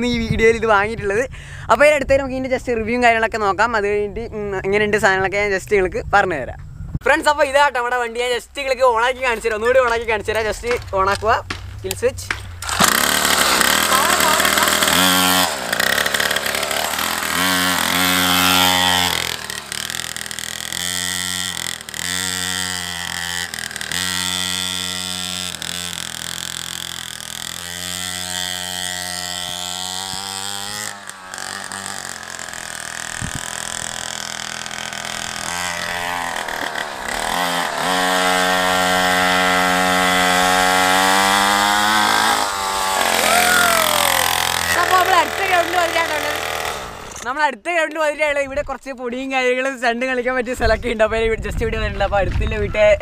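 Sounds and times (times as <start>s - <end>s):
dirt bike engine revving: 12.4s - 47.3s.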